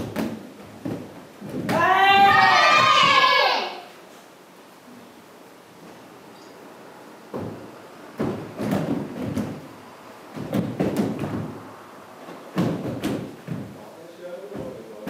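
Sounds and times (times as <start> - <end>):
bare feet stamping on wooden floor: 0.0 - 3.2, 7.3 - 13.8, 14.5 - 15.0.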